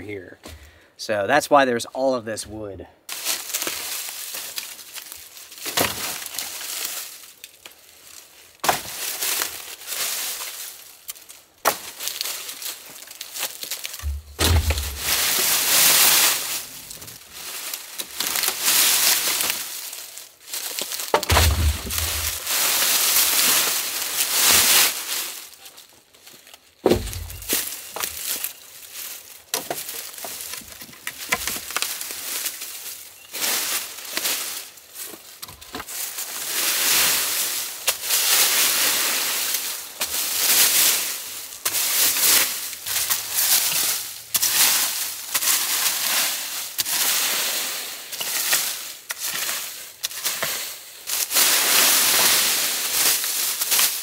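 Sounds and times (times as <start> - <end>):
wood landing thuds: 0.4 - 0.7, 13.9 - 17.1, 21.1 - 22.5, 26.8 - 28.2
sticks dragged through dry leaves: 3.1 - 54.0
wood snapping: 11.1 - 17.2, 20.6 - 22.6, 26.8 - 28.4, 29.5 - 32.1.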